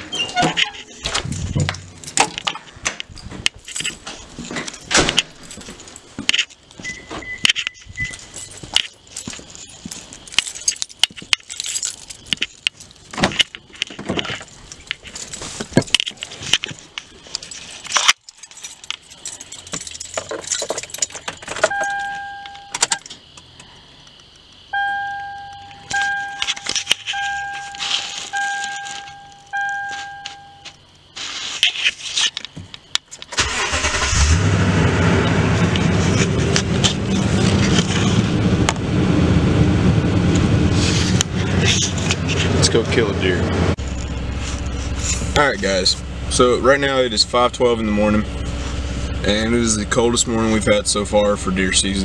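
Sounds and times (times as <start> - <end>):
keys jangling: 0.6 - 6.6, 7.4 - 23.2, 25.7 - 30.8
dashboard warning chime beeping: 6.8 - 8.3, 21.7 - 23.0, 24.7 - 30.8
gear clattering: 7.4 - 22.0.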